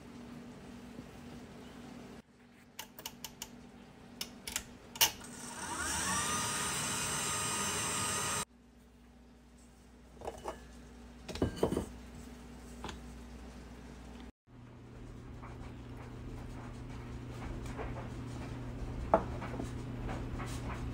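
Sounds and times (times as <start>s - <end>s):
stand mixer motor whining: 5.2s - 8.5s.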